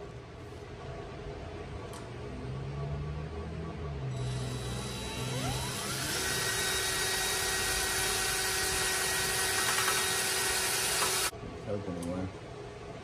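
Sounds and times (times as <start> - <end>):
cordless drill whining: 4.2 - 11.3.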